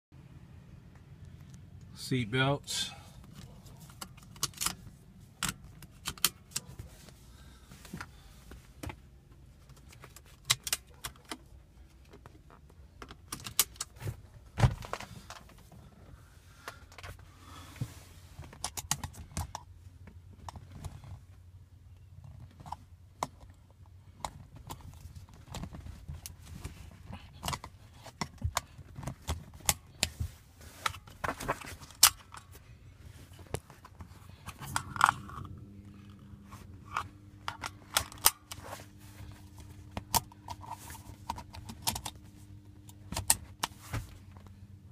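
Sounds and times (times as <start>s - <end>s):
low steady hum: 0.2s - 44.9s
seat belt buckles clinking: 3.3s - 6.8s.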